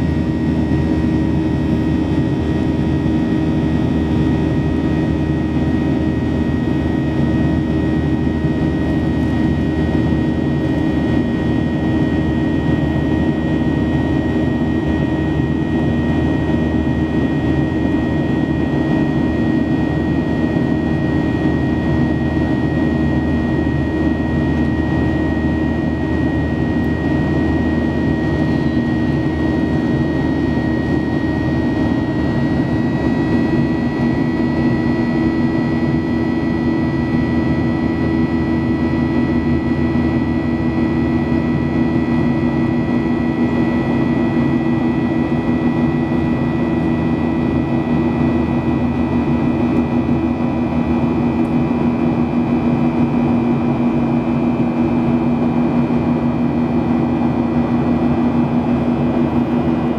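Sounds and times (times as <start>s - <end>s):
jet engines whining: 0.0s - 59.9s.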